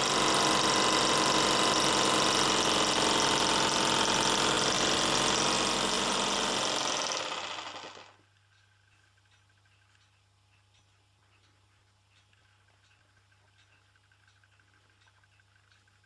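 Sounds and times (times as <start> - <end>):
miniature steam engine running: 0.0 - 8.2.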